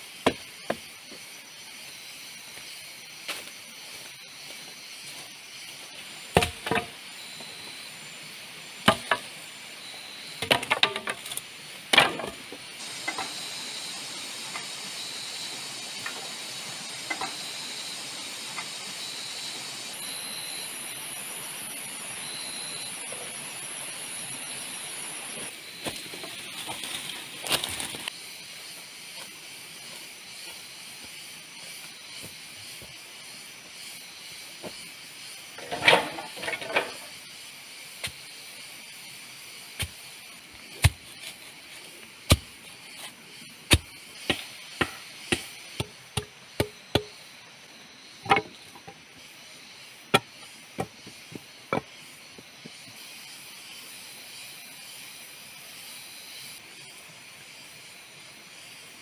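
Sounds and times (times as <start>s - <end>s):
steady high hiss: 0.0s - 59.0s.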